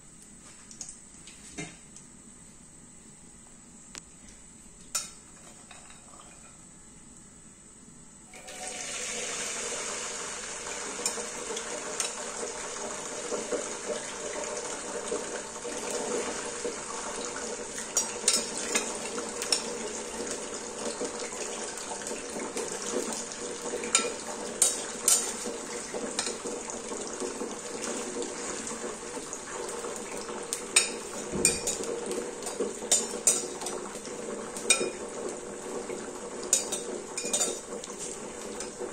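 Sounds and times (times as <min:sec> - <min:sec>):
oil sizzling in a pan: 0:08.4 - 0:38.9.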